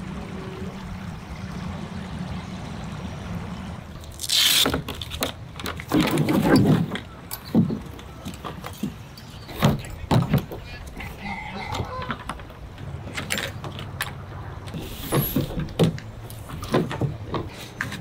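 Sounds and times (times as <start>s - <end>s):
water trickling over stones: 0.0s - 5.9s.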